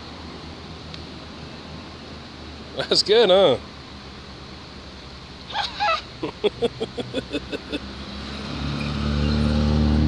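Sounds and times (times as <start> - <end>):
vehicle engine drone: 3.6 - 10.0.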